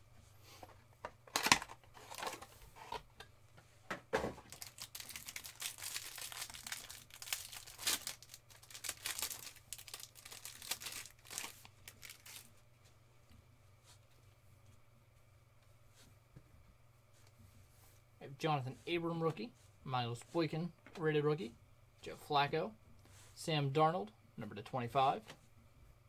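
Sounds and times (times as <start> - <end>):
plastic wrapping crinkling: 4.4 - 12.5
plastic wrapping ripping: 4.5 - 12.5.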